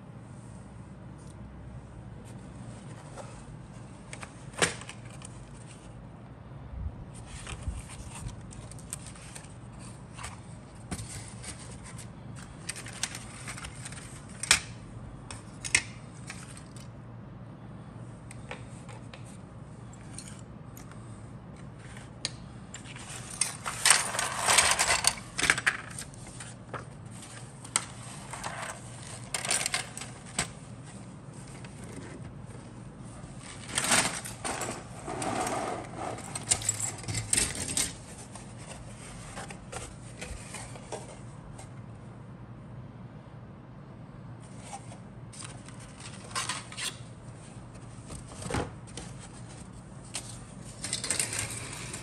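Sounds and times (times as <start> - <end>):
plastic parts clicking and rattling: 10.2 - 16.9, 22.8 - 30.6, 36.2 - 41.1, 50.1 - 52.0.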